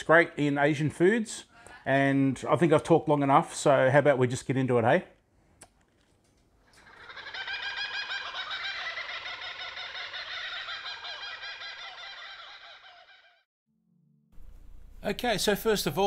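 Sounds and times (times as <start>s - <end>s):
chorus of birds chirping: 6.8s - 13.5s.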